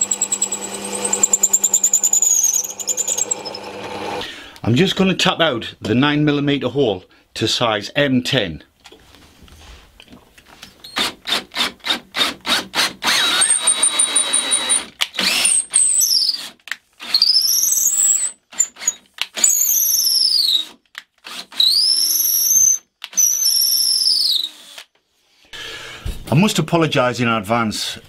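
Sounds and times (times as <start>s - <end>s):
cordless drill motor whine: 0.0s - 4.2s, 13.0s - 15.7s.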